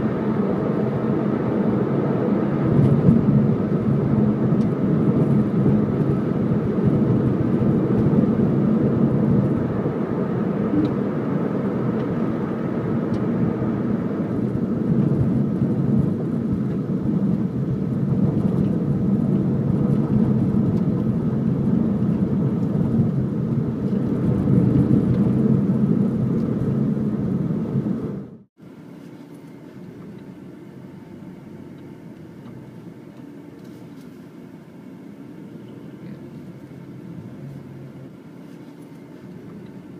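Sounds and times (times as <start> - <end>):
low rumble: 0.0 - 28.5
car engine and tyre noise: 0.0 - 39.9.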